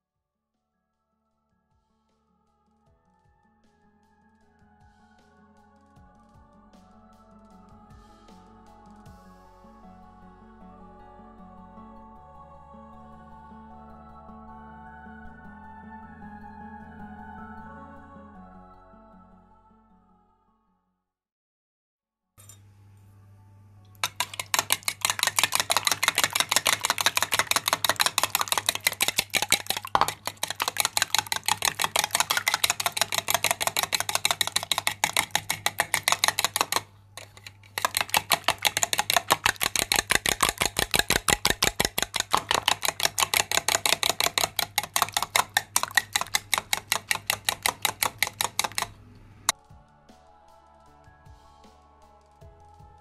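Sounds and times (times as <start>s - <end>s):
spoon beating eggs in glass bowl: 23.9s - 49.0s.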